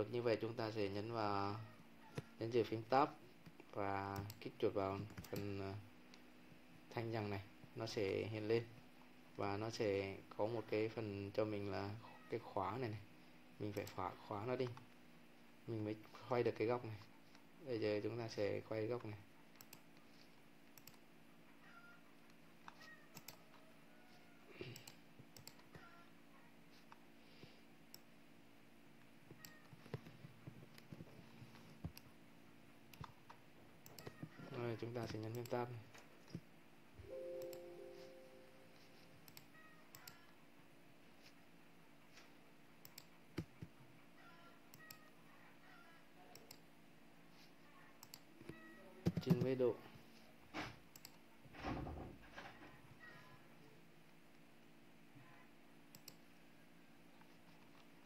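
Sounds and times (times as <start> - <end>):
low steady hum: 0.0 - 58.0
computer mouse clicks: 3.4 - 4.4, 5.0 - 6.2, 19.0 - 20.1, 20.7 - 21.0, 22.2 - 23.6, 24.6 - 25.9, 29.3 - 32.1, 32.9 - 35.6, 39.2 - 40.3, 42.8 - 43.8, 44.7 - 45.1, 46.3 - 46.7, 48.0 - 48.3, 50.9 - 51.2, 55.9 - 56.3.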